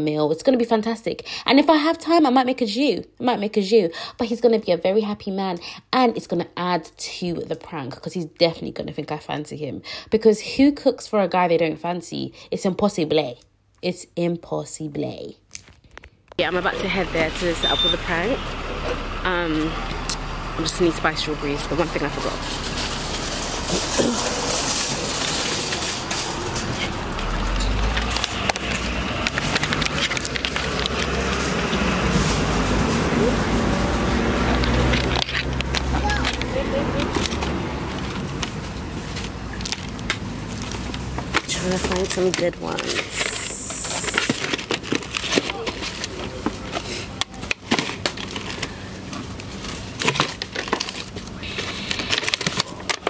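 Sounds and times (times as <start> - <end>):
bus engine rumble: 16.4 - 44.4
steady background noise: 16.4 - 53.0
street traffic: 16.4 - 53.0
plastic punnets crackling and clicking: 22.2 - 32.6, 34.4 - 53.0.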